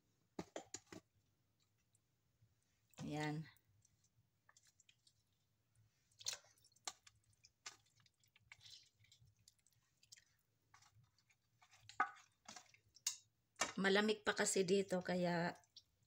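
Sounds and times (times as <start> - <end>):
wet plops and squishes: 3.8 - 5.4, 6.1 - 13.7.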